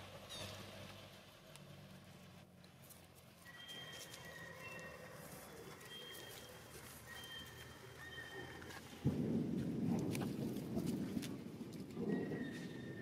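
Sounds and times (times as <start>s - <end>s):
high whistle-like animal calls: 3.4s - 8.8s.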